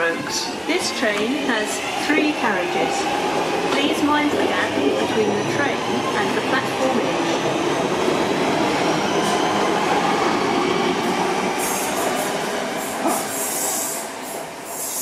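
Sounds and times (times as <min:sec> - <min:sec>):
train wheels running on rails: 0:00.2 - 0:15.0
high hiss: 0:11.6 - 0:15.0.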